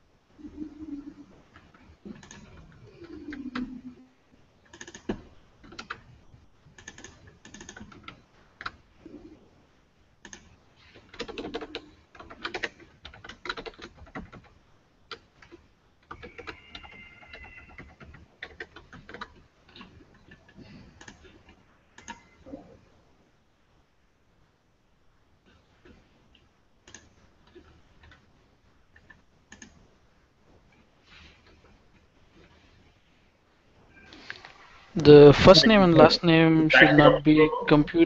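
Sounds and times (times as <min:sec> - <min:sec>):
computer keyboard typing: 0:01.5 - 0:03.8, 0:04.6 - 0:08.8, 0:10.2 - 0:22.3, 0:26.8 - 0:28.2, 0:28.9 - 0:29.8
brief high tone: 0:36.7 - 0:37.9.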